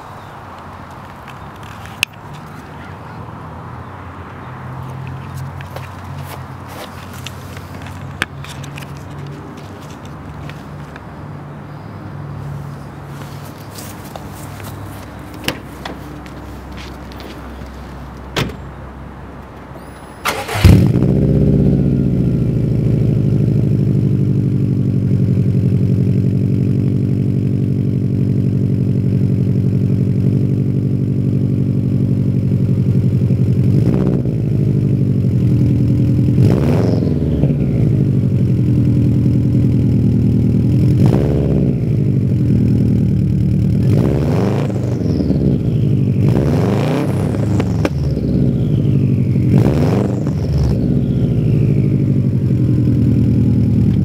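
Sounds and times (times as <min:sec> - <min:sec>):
car engine starting and idling: 0:04.5 - 0:54.0
engine throttle blips: 0:19.8 - 0:54.0.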